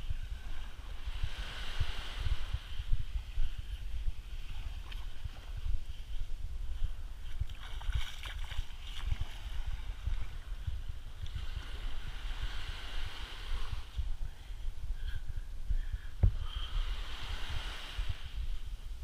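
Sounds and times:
wind buffeting microphone: 0:00.0 - 0:19.0
small waves lapping shore: 0:00.3 - 0:03.4, 0:07.2 - 0:14.0, 0:16.8 - 0:18.3.

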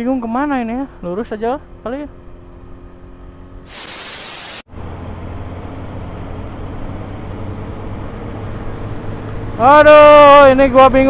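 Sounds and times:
loud even hiss: 0:03.6 - 0:04.7.

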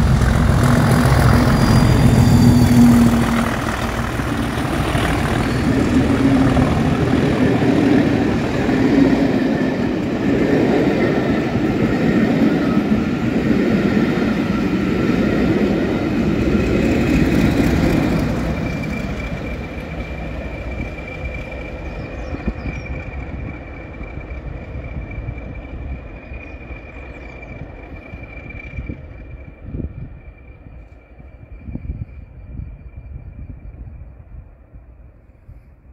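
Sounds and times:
diesel locomotive passing: 0:00.0 - 0:35.1
train rumbling on rails: 0:00.0 - 0:35.9
steady high whistle: 0:00.9 - 0:03.8.

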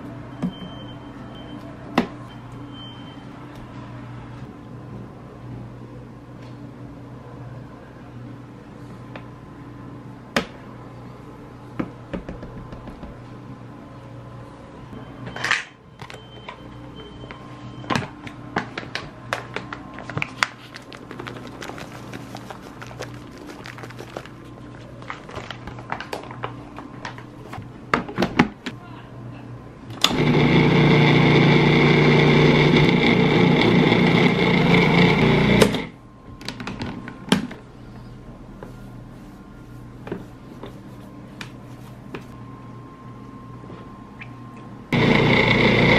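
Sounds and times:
food processor motor running: 0:30.0 - 0:35.9, 0:44.9 - 0:45.9.

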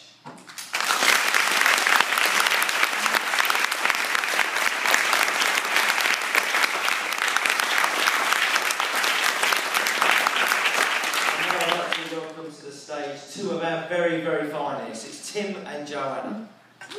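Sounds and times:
audience applauding: 0:00.5 - 0:12.3.

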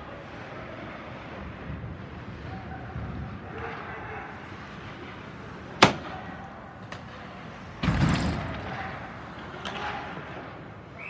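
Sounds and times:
puck banging boards: 0:05.0 - 0:10.7.

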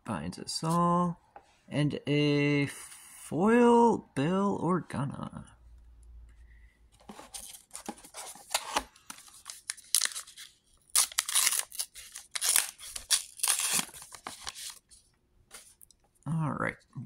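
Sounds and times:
paper wrapper tearing and crinkling: 0:08.4 - 0:14.8.

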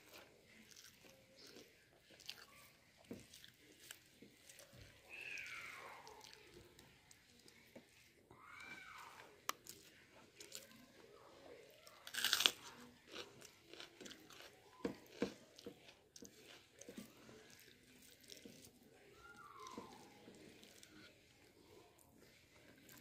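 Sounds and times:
crunchy chewing: 0:00.0 - 0:23.0
fingers squishing rice: 0:00.0 - 0:23.0.

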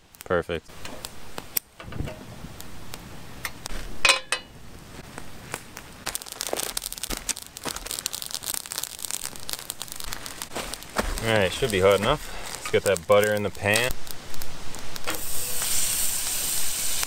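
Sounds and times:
campfire crackling and popping: 0:00.0 - 0:17.0
frying pan clanking on grate: 0:04.0 - 0:04.5.

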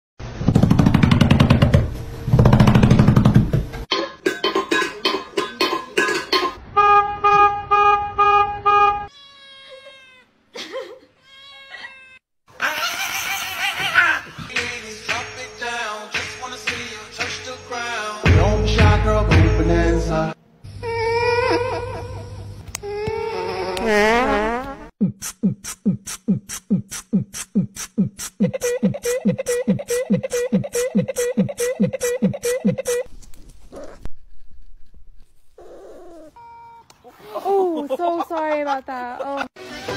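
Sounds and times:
deep thumping beat: 0:18.3 - 0:19.6, 0:25.0 - 0:33.1.

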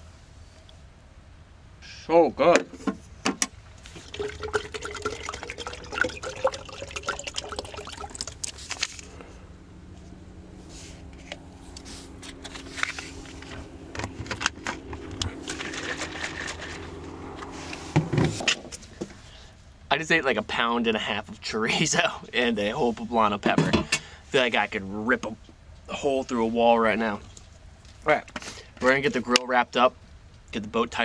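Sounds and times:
faint low hum: 0:00.0 - 0:23.3
water gurgling into bottle: 0:03.8 - 0:08.6.

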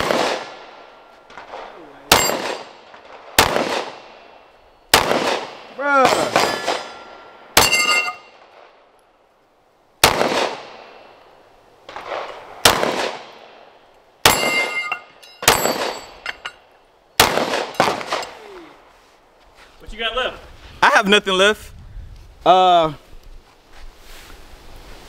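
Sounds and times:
pistol shots: 0:00.0 - 0:00.7, 0:01.4 - 0:04.2, 0:04.9 - 0:07.0, 0:10.0 - 0:11.0, 0:11.9 - 0:13.4, 0:14.2 - 0:14.8, 0:15.4 - 0:16.1, 0:17.2 - 0:18.4
short metallic ring: 0:06.4 - 0:08.3, 0:14.3 - 0:16.6.

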